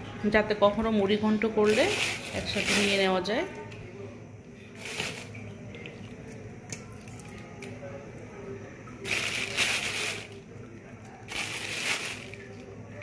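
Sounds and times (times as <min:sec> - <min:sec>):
plastic bag crinkling: 0:01.6 - 0:03.1, 0:04.8 - 0:05.4, 0:09.0 - 0:10.4, 0:11.3 - 0:12.6.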